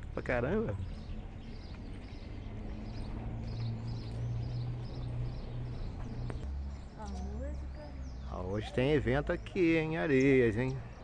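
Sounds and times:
bird chirping: 0:00.0 - 0:11.0.

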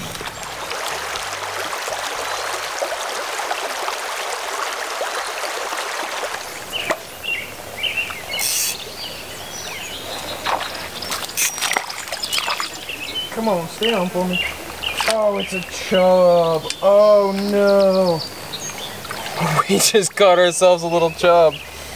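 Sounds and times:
birds chirping: 0:00.0 - 0:03.0, 0:06.2 - 0:21.9
creek water rushing: 0:00.0 - 0:21.9.

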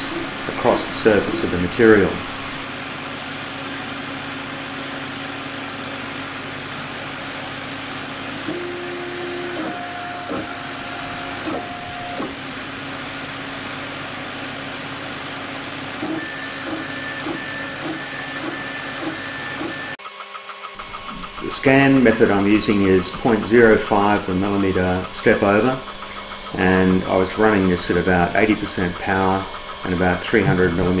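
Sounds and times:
laser head scanning pulse: 0:00.0 - 0:02.7, 0:08.0 - 0:13.0, 0:16.0 - 0:20.0
stepper motor stepped tones: 0:00.0 - 0:02.9, 0:05.3 - 0:14.2, 0:15.0 - 0:31.0
laser engraver mechanical hum: 0:00.0 - 0:20.0, 0:20.8 - 0:31.0.

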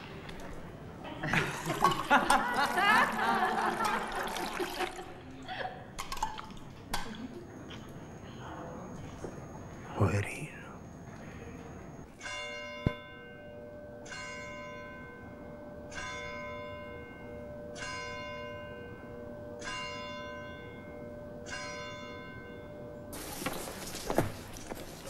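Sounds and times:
church bell tolling: 0:12.1 - 0:23.3.

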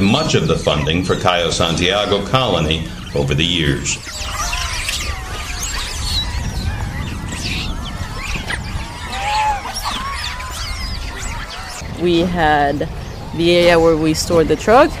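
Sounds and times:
monkeys squealing and chirping: 0:00.7 - 0:12.0.

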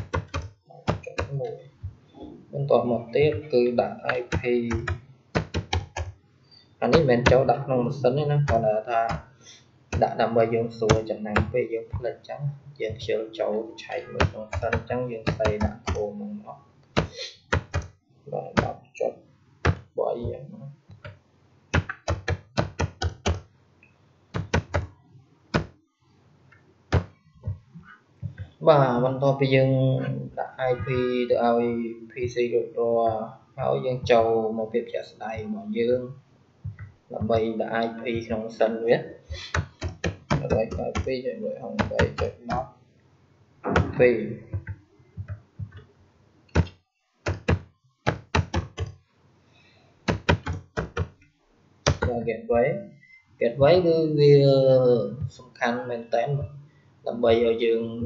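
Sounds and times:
computer keyboard keystrokes: 0:00.0 - 0:01.4, 0:04.3 - 0:06.1, 0:14.2 - 0:16.0, 0:21.8 - 0:23.4, 0:24.4 - 0:24.9, 0:39.5 - 0:41.1, 0:47.3 - 0:49.0, 0:50.1 - 0:51.2
keyboard keys tapping: 0:00.0 - 0:02.3, 0:03.0 - 0:06.2, 0:06.8 - 0:07.5, 0:08.4 - 0:09.3, 0:09.9 - 0:12.2, 0:13.9 - 0:16.4, 0:17.0 - 0:18.8, 0:19.6 - 0:23.5, 0:24.3 - 0:25.8, 0:26.9 - 0:28.6, 0:39.3 - 0:42.7, 0:43.6 - 0:45.9, 0:46.5 - 0:46.7, 0:47.3 - 0:49.0, 0:50.1 - 0:51.2, 0:51.8 - 0:52.6.

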